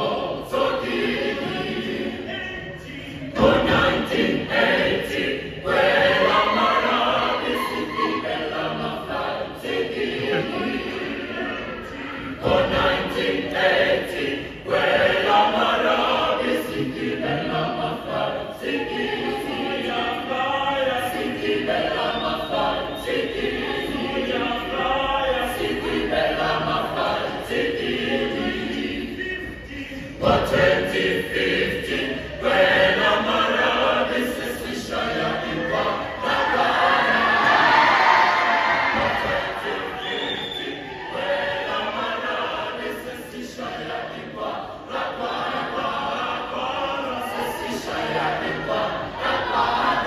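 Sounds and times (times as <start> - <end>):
mixed choir singing a cappella: 0.0 - 50.0.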